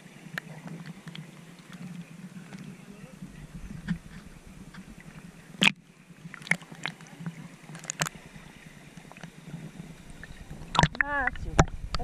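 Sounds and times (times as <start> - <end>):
water sloshing and gurgling: 0.0 - 12.0
low hum: 1.8 - 6.5, 7.3 - 12.0.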